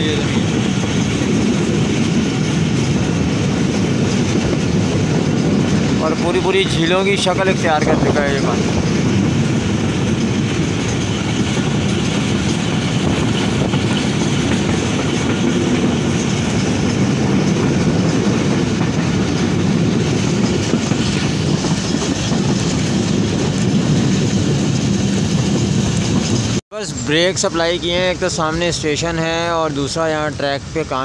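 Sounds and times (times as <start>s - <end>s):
train wheels rumbling on rails: 0.0s - 31.0s.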